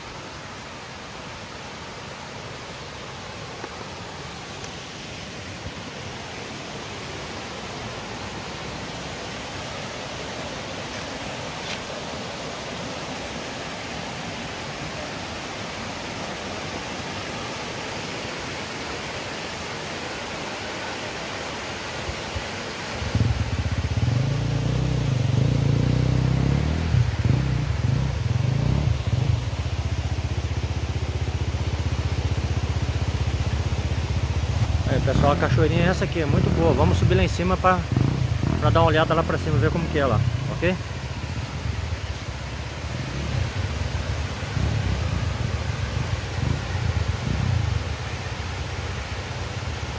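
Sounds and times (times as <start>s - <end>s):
waterfall rushing: 0.0s - 49.9s
motorcycle engine running: 23.0s - 49.9s.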